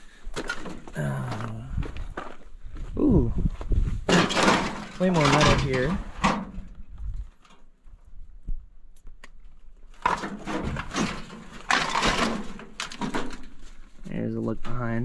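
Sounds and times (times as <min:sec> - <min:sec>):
footsteps crunching on gravel: 0:00.9 - 0:04.1.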